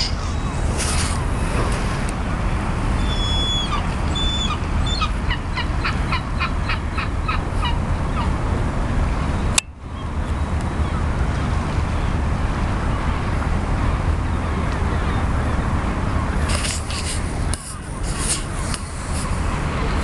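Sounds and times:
low background rumble: 0:00.0 - 0:20.0
gull calling: 0:03.0 - 0:08.4.

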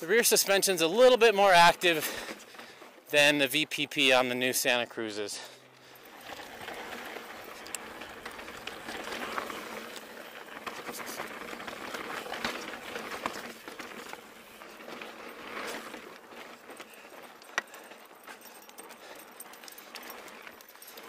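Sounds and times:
bike tyres rolling on dirt and stone: 0:00.0 - 0:21.0
bike clicks and knocks: 0:05.8 - 0:21.0.

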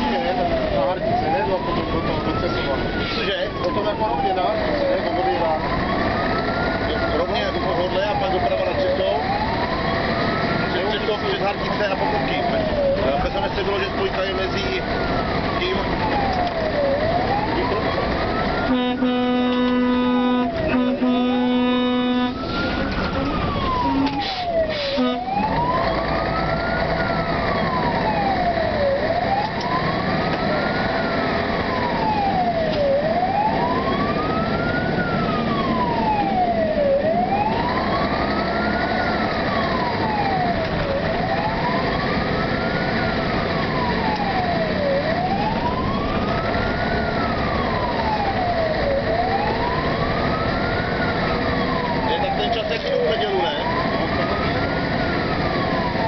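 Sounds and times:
fire engine siren wailing: 0:00.0 - 0:56.0
truck engine and road noise: 0:00.0 - 0:56.0
horn blasts and toots: 0:18.6 - 0:22.5, 0:23.8 - 0:25.4.

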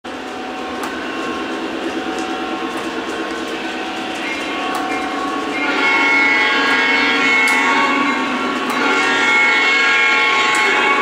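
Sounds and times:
model locomotive engine rumble: 0:00.1 - 0:11.0.

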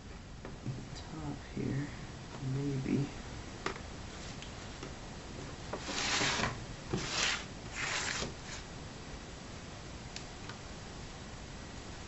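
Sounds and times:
short scraping rubs: 0:05.8 - 0:08.7.

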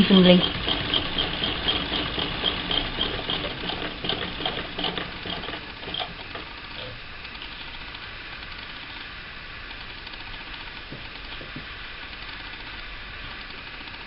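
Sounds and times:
sewing machine stitching: 0:00.0 - 0:06.6.

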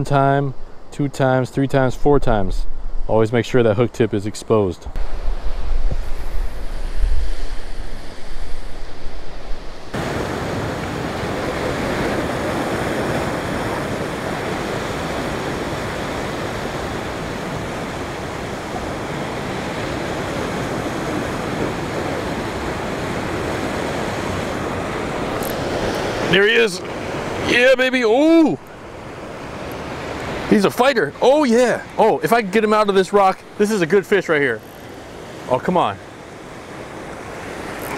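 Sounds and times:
ocean surf on rocks: 0:00.0 - 0:37.9
wind buffeting microphone: 0:04.8 - 0:27.6.

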